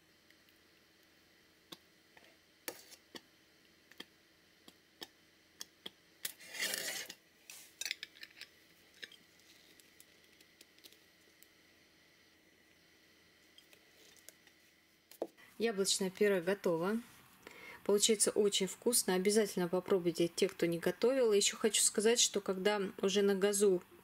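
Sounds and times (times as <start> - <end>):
scraping: 6.4 - 7.2.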